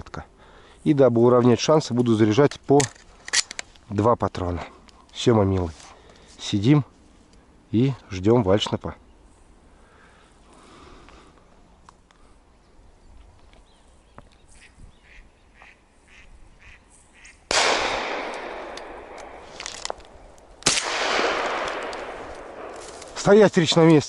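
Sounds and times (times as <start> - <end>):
shotgun shots with echo: 17.5 - 19.6, 20.6 - 22.8.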